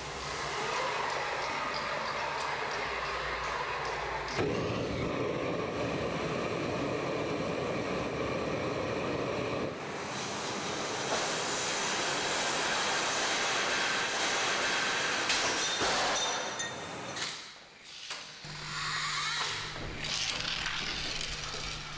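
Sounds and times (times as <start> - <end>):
steam hissing: 4.3 - 16.1
torch flame rushing: 4.4 - 10.1.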